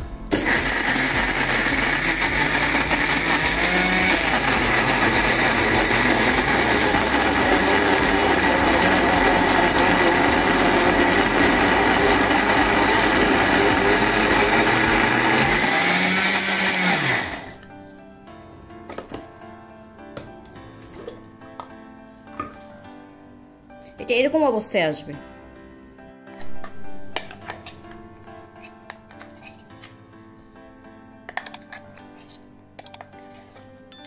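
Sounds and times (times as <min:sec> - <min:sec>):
blender motor winding down: 0:00.3 - 0:17.6
electric blender grinding: 0:00.3 - 0:17.6.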